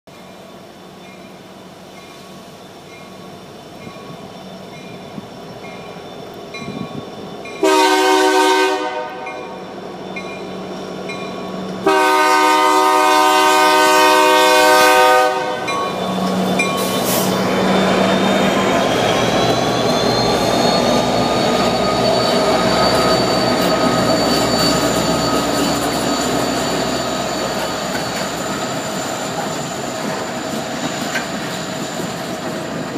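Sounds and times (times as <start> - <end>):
wheel squeal whine: 2.0 - 7.8, 9.3 - 11.9, 14.9 - 32.9
locomotive air horn blasts: 7.6 - 9.6, 11.8 - 15.8
locomotives passing: 9.1 - 32.9
freight cars clickety-clack: 22.0 - 32.9.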